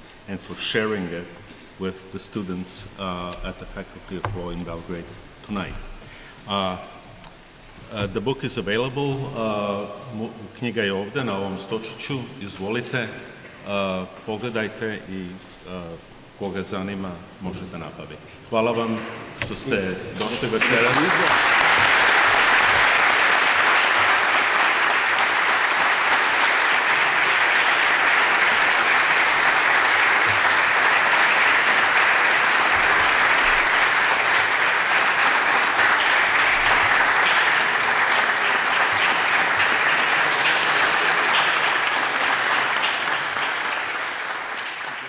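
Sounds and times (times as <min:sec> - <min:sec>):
audience applauding: 0:19.7 - 0:45.0.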